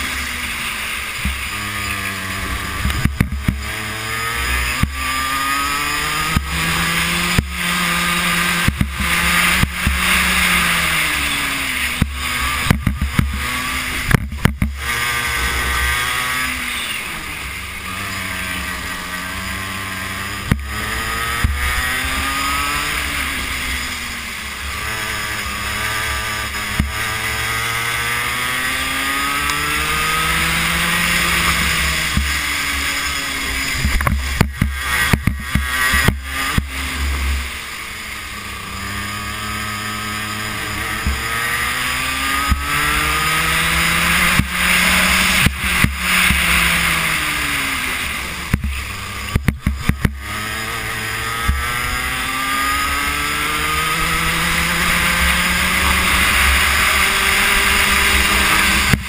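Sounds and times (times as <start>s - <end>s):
racing kart engine: 0.0s - 59.0s
sharp clicks and knocks: 2.8s - 3.7s, 8.6s - 10.2s, 12.0s - 14.8s, 26.7s - 27.0s, 31.1s - 32.4s, 33.8s - 36.7s, 44.2s - 46.6s, 48.5s - 50.3s, 55.7s - 59.0s.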